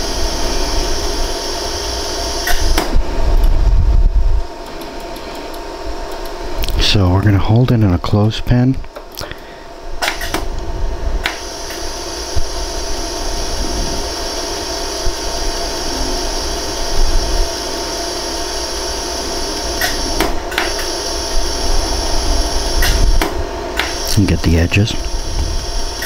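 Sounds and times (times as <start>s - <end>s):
laser welder hissing: 0.0s - 3.6s, 9.9s - 10.6s, 11.2s - 26.0s
laser pulse snap: 2.3s - 3.0s, 19.5s - 21.5s, 22.5s - 24.2s.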